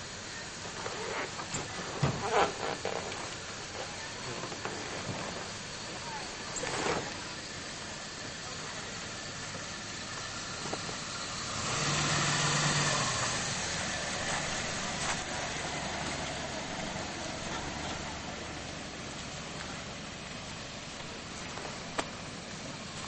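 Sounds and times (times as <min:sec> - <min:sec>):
pickup truck driving on dirt road: 0:00.0 - 0:23.0.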